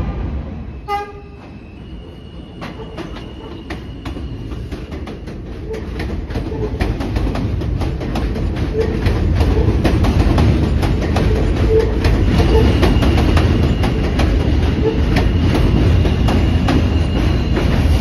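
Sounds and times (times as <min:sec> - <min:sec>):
subway train rumbling past: 0:00.0 - 0:18.0
wheels clicking over rail joints: 0:02.6 - 0:16.9.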